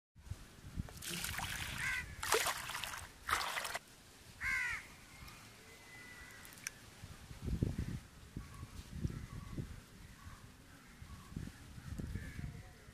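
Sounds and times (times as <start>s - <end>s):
crows cawing: 1.8s - 2.2s, 4.4s - 4.9s.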